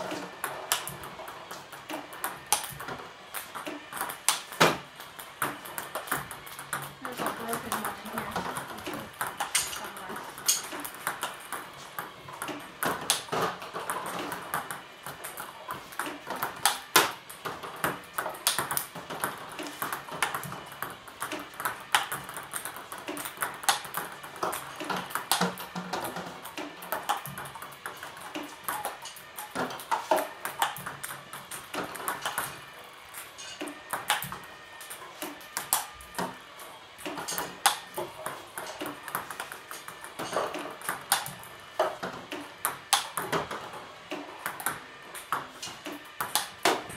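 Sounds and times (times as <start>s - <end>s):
table tennis ball taps: 1.9s - 28.8s.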